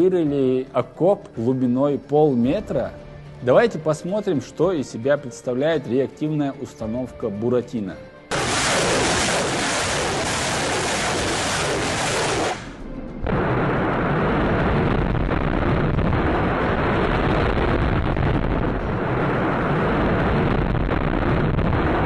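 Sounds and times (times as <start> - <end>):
rockets launching roar: 8.3 - 22.0.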